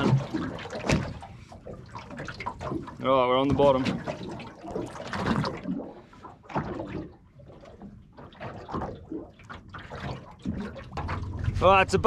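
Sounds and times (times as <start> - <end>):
waves slapping against boat hull: 0.0 - 12.0.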